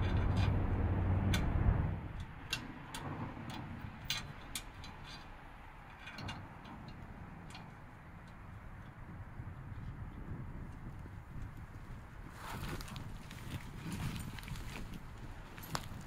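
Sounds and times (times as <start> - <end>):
low rumble: 0.0 - 4.7
light clicks and taps of metal parts: 2.1 - 9.0.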